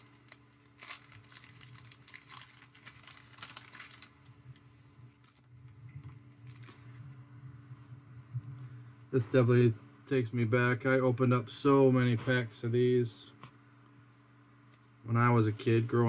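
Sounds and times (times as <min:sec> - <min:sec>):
paper wrapper crinkling: 0:00.0 - 0:07.0
low steady hum: 0:00.0 - 0:16.0.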